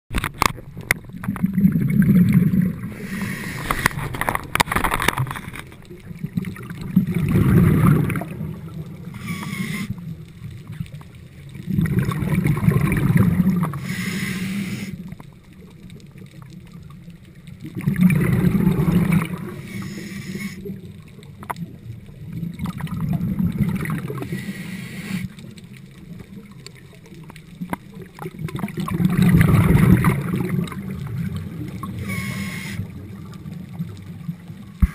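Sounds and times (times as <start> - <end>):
bubbling exhaled air: 1.0 - 4.4, 6.0 - 10.2, 11.5 - 15.2, 17.6 - 20.9, 22.2 - 25.6, 28.2 - 34.2
regulator hiss on inhale: 2.9 - 4.0, 9.1 - 10.0, 13.7 - 15.2, 19.5 - 20.7, 24.2 - 25.5, 32.0 - 32.9.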